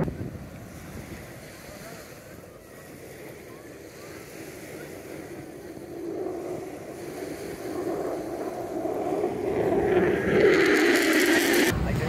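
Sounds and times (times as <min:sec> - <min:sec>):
jet engine rumble overhead: 0:00.0 - 0:12.0.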